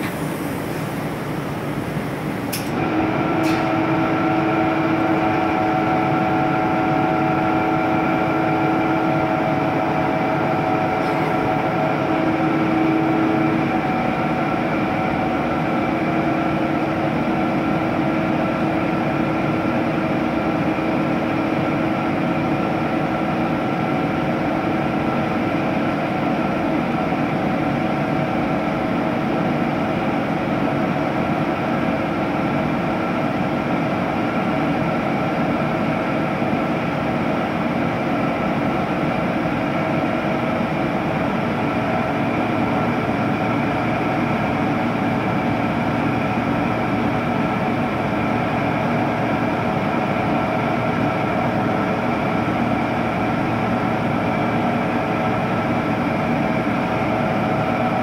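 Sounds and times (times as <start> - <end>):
steady machine drone: 0.0 - 58.0.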